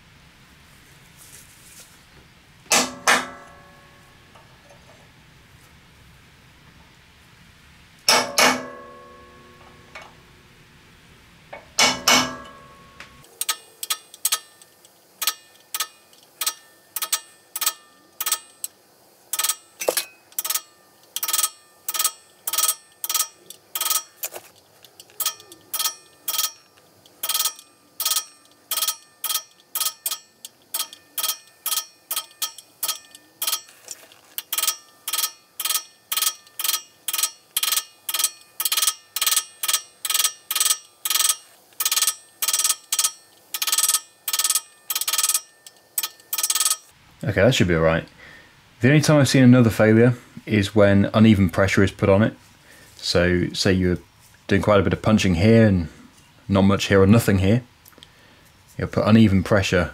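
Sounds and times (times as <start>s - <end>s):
hammer tapping metal punch: 2.7s - 4.5s, 8.1s - 10.2s, 11.5s - 18.7s, 19.4s - 24.2s, 25.2s - 33.7s, 34.4s - 46.9s.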